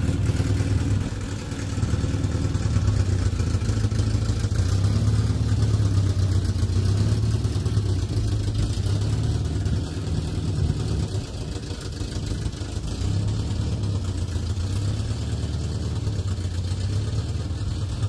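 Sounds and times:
car engine at low revs: 0.0 - 18.0.

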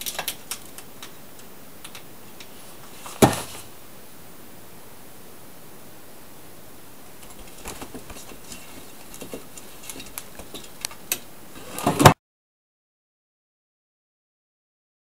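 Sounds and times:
kitten scuffle: 2.5 - 3.7, 7.2 - 10.8.

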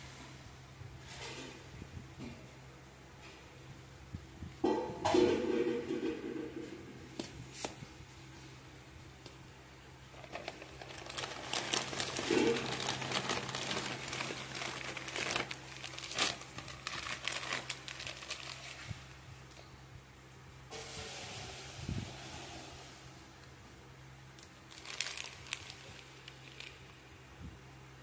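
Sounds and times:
plastic bag crinkling: 10.1 - 19.2, 24.4 - 27.0.

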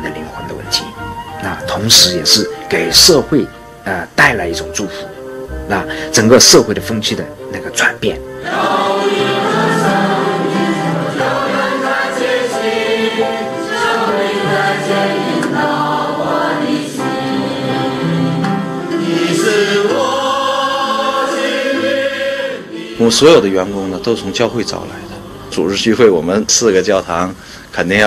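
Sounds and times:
choir singing a hymn: 8.3 - 27.4.

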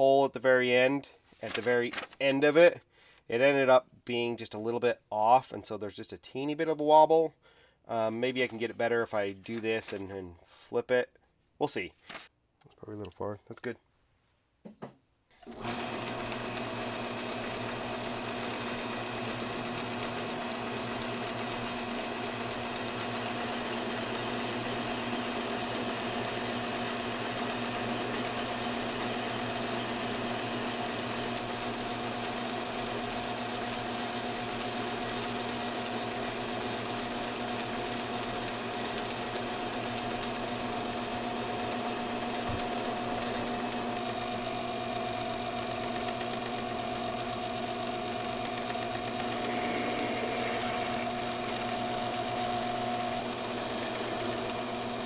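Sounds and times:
metal lathe running: 15.5 - 55.0.

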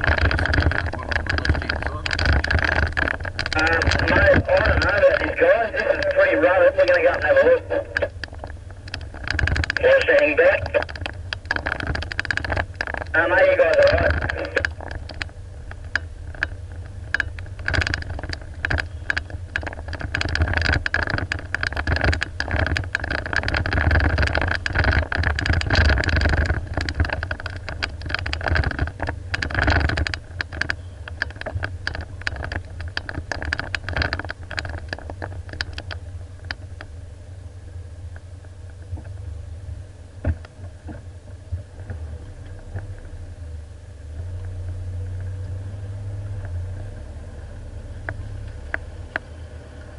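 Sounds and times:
vehicle rattling and knocking: 0.0 - 37.0
vehicle engine running low: 0.0 - 49.9.

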